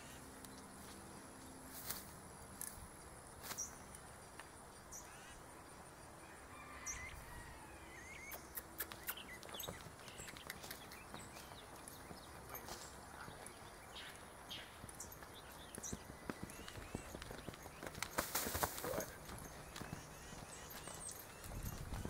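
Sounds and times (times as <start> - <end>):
bird chirps: 7.8 - 18.1, 18.9 - 22.0
horse hooves on sand: 8.2 - 22.0.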